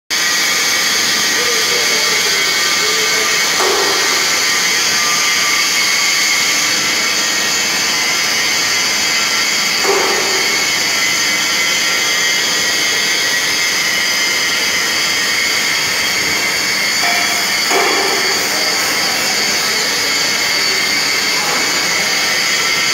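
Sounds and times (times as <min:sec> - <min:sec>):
mixer motor whirring: 0:00.2 - 0:22.9.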